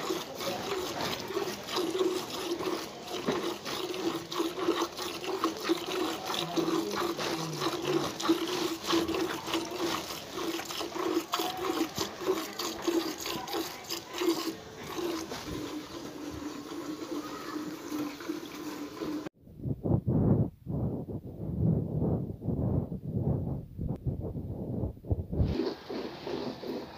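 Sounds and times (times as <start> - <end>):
milk squirting into metal bucket: 0.0 - 19.3, 25.3 - 26.9.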